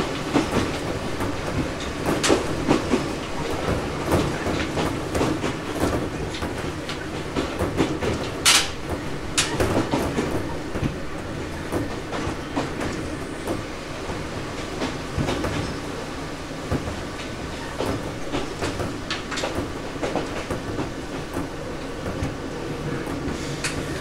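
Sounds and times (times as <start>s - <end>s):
train rumble: 0.0s - 24.0s
wheels clicking over rail joints: 0.1s - 11.0s, 16.7s - 22.4s.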